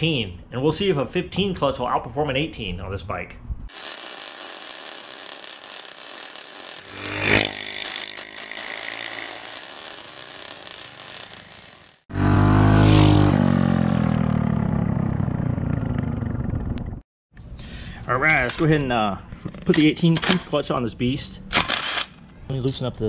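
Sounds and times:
mini bike engine passing by: 6.6s - 16.7s.

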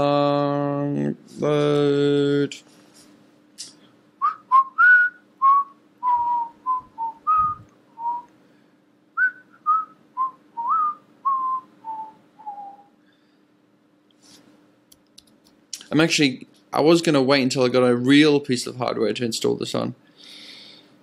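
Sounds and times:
faint steady hum: 0.0s - 21.0s
man whistling a tune: 4.2s - 8.3s, 9.2s - 12.9s.

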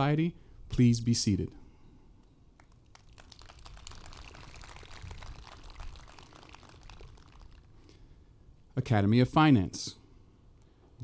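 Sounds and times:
audience applauding: 2.6s - 7.7s.

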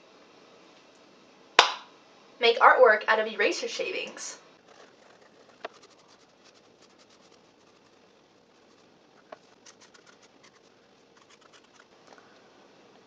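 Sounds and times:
scratching on notebook paper: 4.6s - 11.9s.

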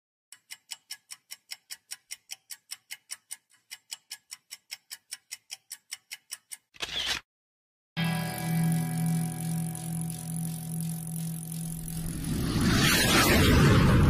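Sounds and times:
rapid clock-like ticking: 0.3s - 6.7s, 8.8s - 13.2s.

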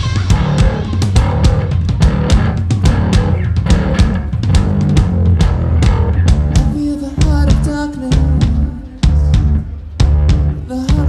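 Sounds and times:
drum kit beat: 0.0s - 11.0s
rock band playing: 0.0s - 11.0s.

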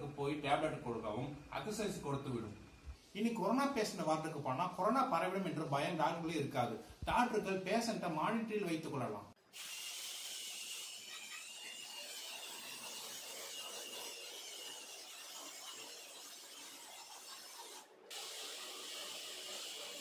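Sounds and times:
robot motors whirring: 9.6s - 20.0s.

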